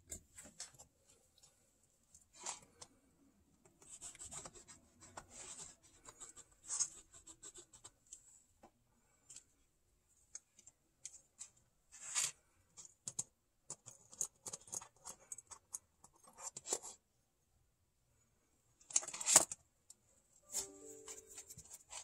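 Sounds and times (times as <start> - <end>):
kittens' claws scratching on floor: 11.3 - 12.5
paper and cardboard rustling: 20.5 - 22.0.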